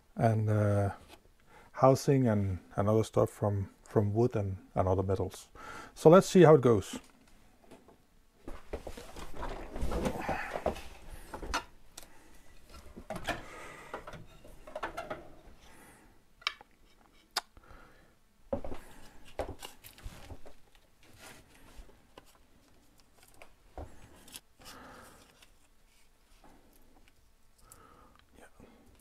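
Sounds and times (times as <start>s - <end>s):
rustling of material: 8.4s - 13.4s, 18.5s - 27.7s.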